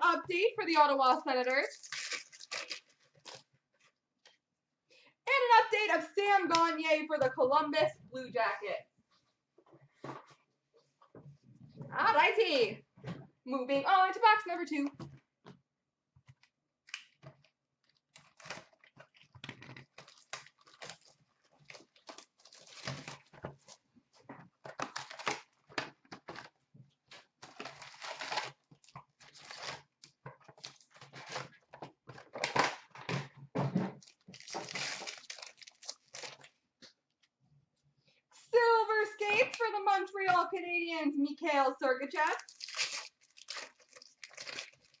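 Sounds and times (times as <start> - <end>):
wrapping crinkling and tearing: 1.4 - 4.0, 17.8 - 23.8, 24.7 - 32.7, 34.0 - 36.6, 42.2 - 45.0.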